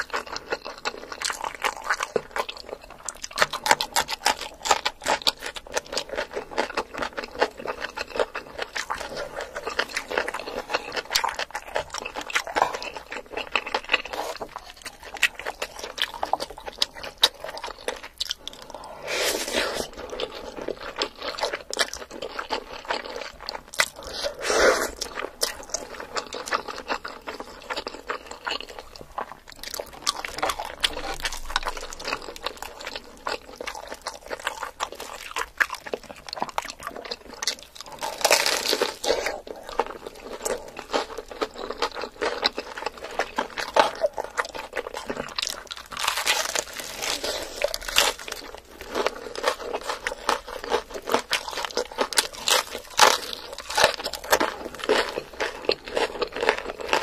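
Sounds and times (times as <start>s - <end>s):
chewing: 0.0s - 57.0s
crunching fried chicken: 0.0s - 57.0s.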